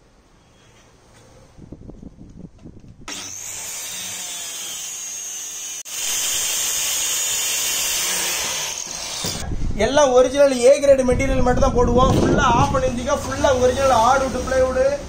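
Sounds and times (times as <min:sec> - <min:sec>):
power tool whining: 0:03.0 - 0:09.4.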